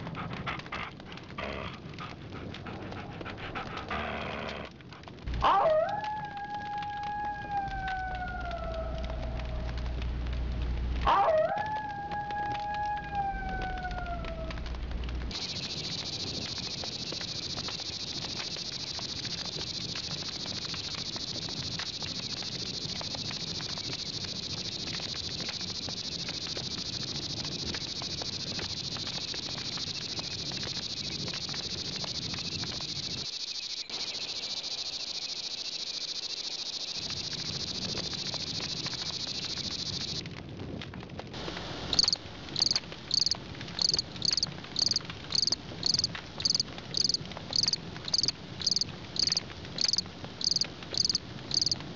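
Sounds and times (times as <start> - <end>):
crickets chirping: 15.3 - 40.2, 41.4 - 51.8.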